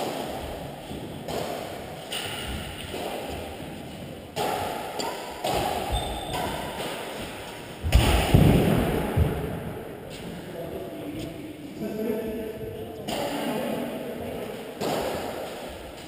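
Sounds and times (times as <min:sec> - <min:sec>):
rackets hitting shuttlecock: 0:00.0 - 0:09.6, 0:13.0 - 0:13.5, 0:14.4 - 0:16.0.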